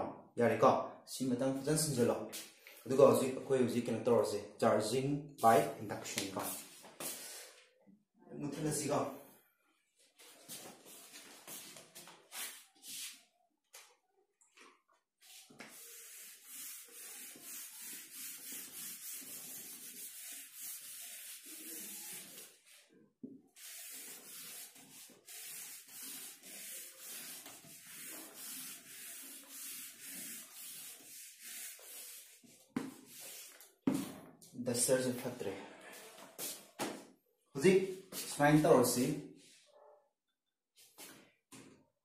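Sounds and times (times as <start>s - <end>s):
eraser rubbing on whiteboard: 15.2s - 22.8s, 23.5s - 34.1s.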